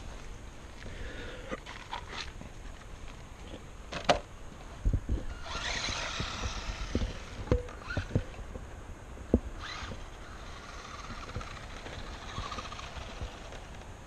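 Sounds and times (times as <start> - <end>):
footsteps on dirt trail: 0.0 - 1.0.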